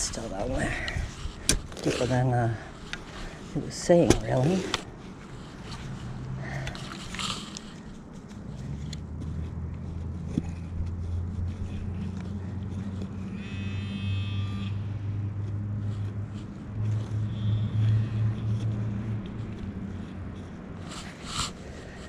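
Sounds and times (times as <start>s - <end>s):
low engine drone: 0.0s - 22.0s
high buzzing tone: 13.4s - 14.9s.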